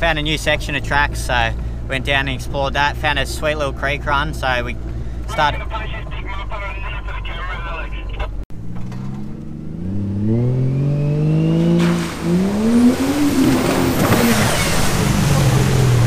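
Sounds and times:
engine revving: 0:08.5 - 0:16.0
mud and water splashing: 0:11.4 - 0:16.0.

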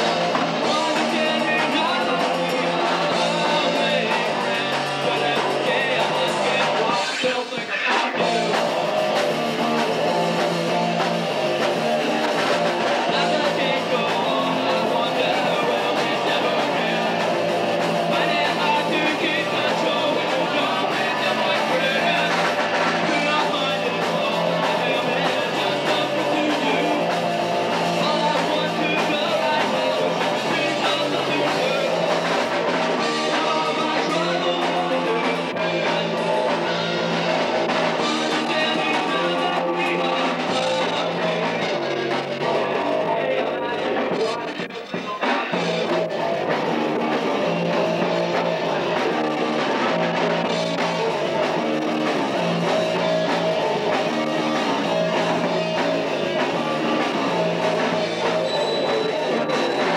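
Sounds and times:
guitar: 0:00.0 - 0:59.9
person singing: 0:00.0 - 0:59.9
rock band playing live: 0:00.0 - 0:59.9.

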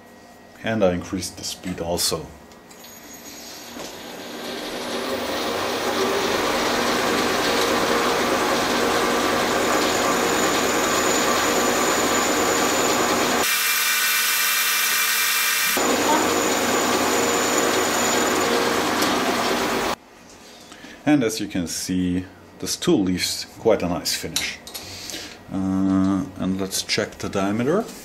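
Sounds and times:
metal lathe cutting: 0:03.8 - 0:20.0.

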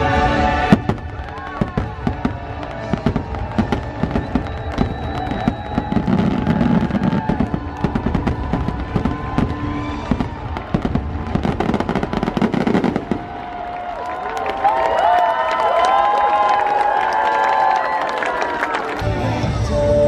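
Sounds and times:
music: 0:00.0 - 0:13.4, 0:18.4 - 0:20.0
fireworks bursting and crackling: 0:00.0 - 0:14.4.

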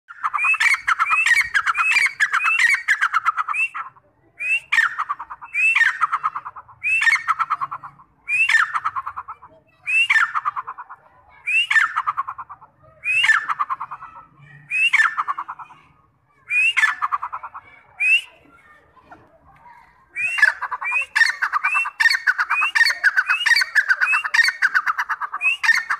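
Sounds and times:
francolin calling: 0:20.2 - 0:25.9.

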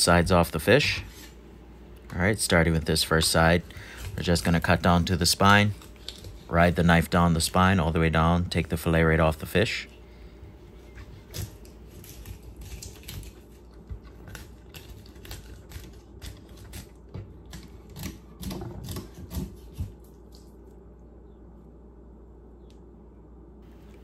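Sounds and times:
knife cutting through fish backbone: 0:11.2 - 0:20.1.

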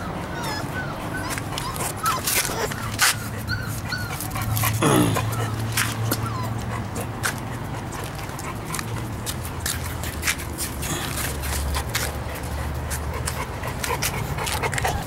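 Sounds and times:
puppies whimpering: 0:00.0 - 0:15.0.

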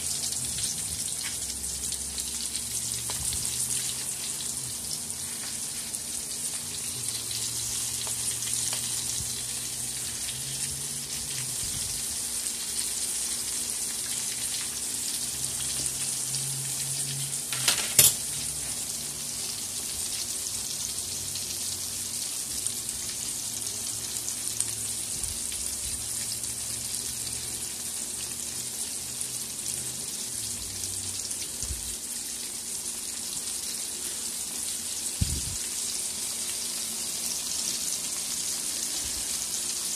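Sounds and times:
fish sizzling in hot oil: 0:00.0 - 0:39.9.

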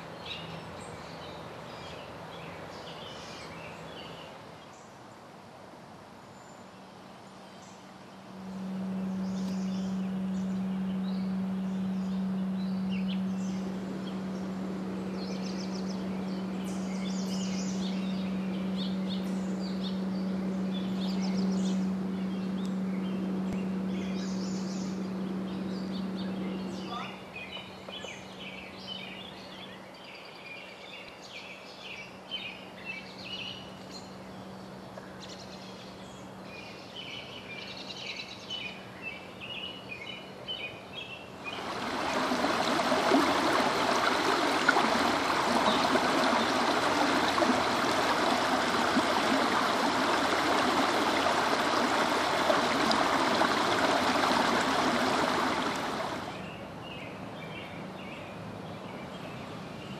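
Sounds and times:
birds chirping: 0:06.8 - 0:59.9
stream water rushing: 0:41.4 - 0:56.5.

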